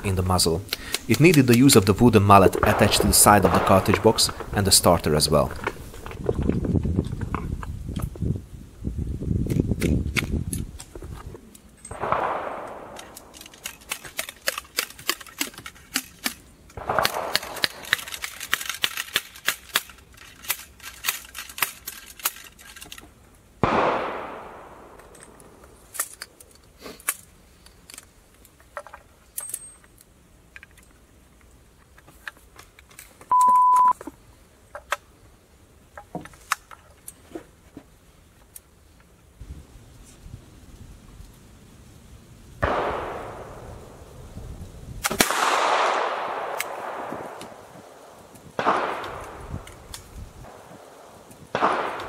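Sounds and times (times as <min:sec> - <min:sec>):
short steady beep: 0:33.3 - 0:34.0.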